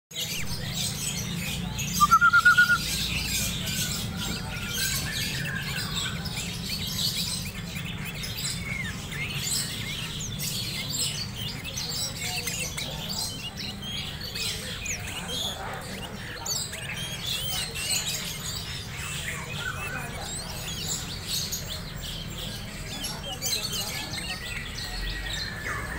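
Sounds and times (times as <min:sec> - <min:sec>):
bird whistled notes: 0:01.9 - 0:03.0
bird short high chirps: 0:01.9 - 0:03.1.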